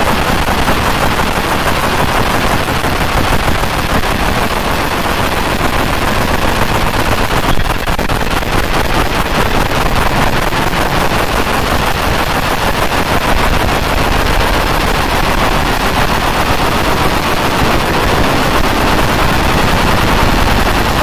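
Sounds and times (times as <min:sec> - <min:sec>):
laser engraving crackling buzz: 0:00.0 - 0:21.0.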